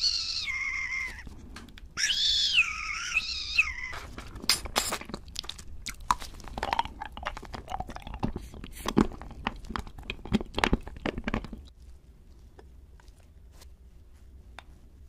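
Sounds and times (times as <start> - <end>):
candy crunching: 3.7 - 13.5
wet mouth clicks: 4.4 - 11.7.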